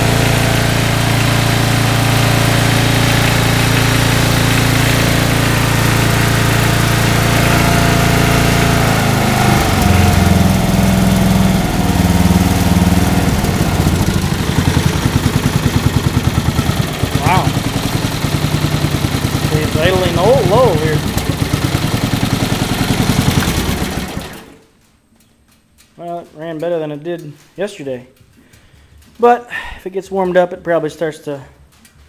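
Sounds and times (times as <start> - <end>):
lawn tractor engine running: 0.0 - 25.2.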